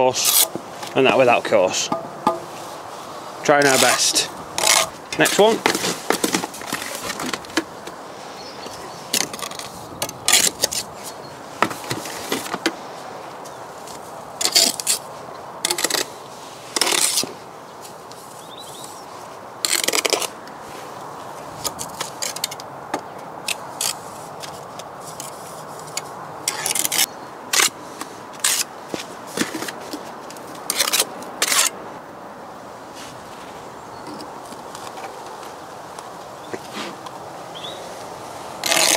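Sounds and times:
trowel scraping wet mortar: 3.6 - 6.0, 38.6 - 38.9.

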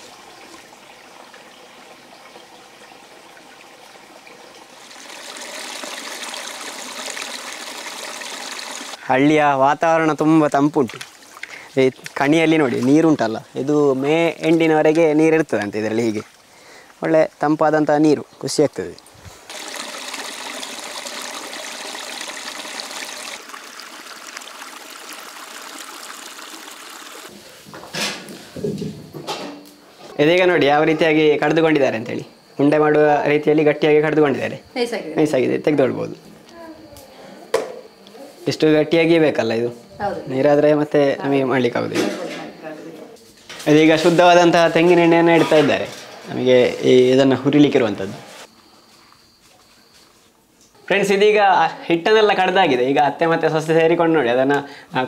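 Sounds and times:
stream trickling over stones: 0.0 - 9.0, 10.8 - 13.1, 18.7 - 27.3.

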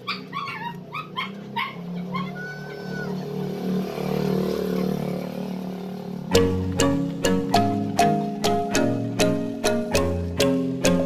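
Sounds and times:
dog yipping and barking: 0.0 - 3.4.

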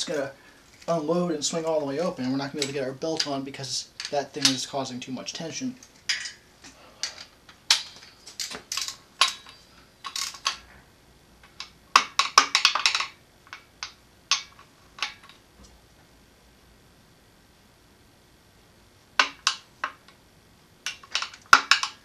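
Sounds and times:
metal parts clinking: 7.0 - 10.6.

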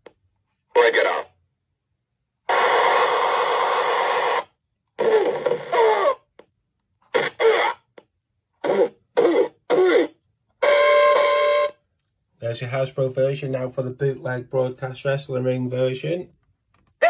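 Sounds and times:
shouted voice clips: 0.7 - 1.4.

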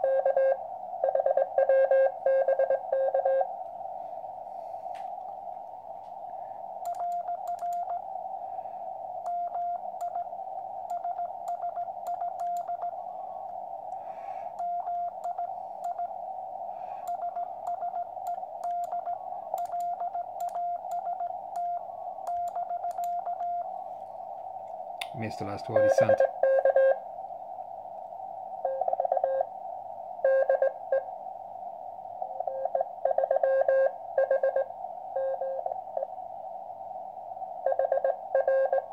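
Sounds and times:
static crackles: 0.0 - 38.9
radio hiss: 12.8 - 22.3, 23.6 - 28.7.

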